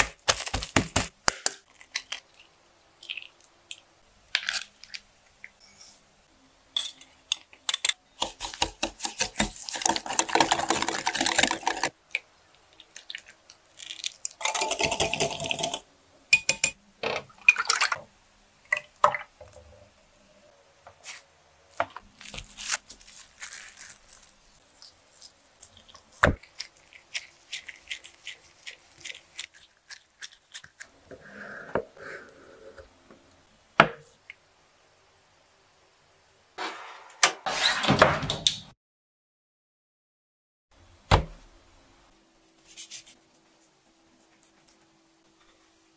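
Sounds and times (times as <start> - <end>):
egg cracking: 0.0 - 5.6, 7.8 - 15.8
fast stirring against a bowl: 8.2 - 11.9, 25.6 - 30.8
utensils clinking and tapping: 14.4 - 15.8, 16.4 - 16.8.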